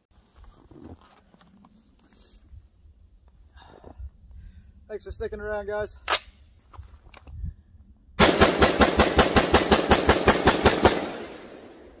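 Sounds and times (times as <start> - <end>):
rapid rifle shots echoing: 8.2 - 12.0.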